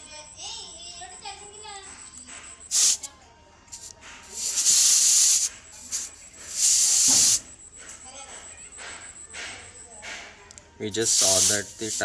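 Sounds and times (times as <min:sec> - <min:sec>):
air hissing from tyre valve: 0:02.7 - 0:03.1, 0:03.7 - 0:07.4, 0:11.0 - 0:12.0
short air puffs: 0:03.7 - 0:07.4.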